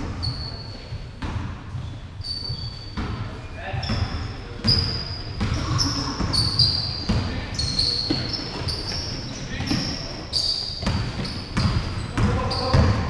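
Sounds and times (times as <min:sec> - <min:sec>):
sneakers squeaking on floor: 0:00.0 - 0:13.0
basketball bouncing: 0:01.2 - 0:03.2, 0:03.8 - 0:13.0
players' voices: 0:03.1 - 0:13.0.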